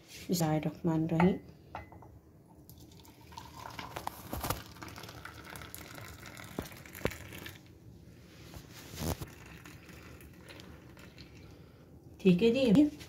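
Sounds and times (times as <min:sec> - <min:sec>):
milk pouring into a mug: 0:02.6 - 0:07.7, 0:09.0 - 0:11.6.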